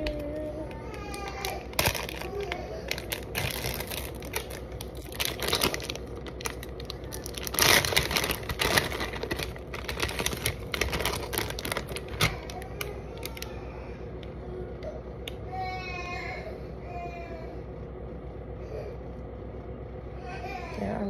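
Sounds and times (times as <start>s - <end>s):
plastic packet crinkling: 0.0s - 13.6s.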